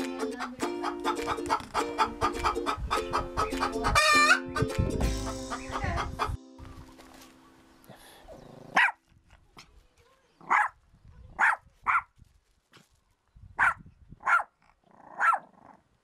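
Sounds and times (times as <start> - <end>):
small dog yapping: 8.7 - 9.0, 10.4 - 10.8, 11.4 - 12.1, 13.6 - 15.6.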